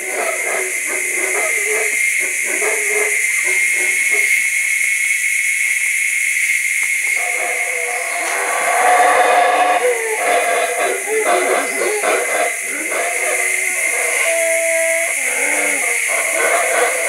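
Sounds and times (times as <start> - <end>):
high-pitched insect drone: 0.0 - 17.0
monkey calling: 7.1 - 17.0.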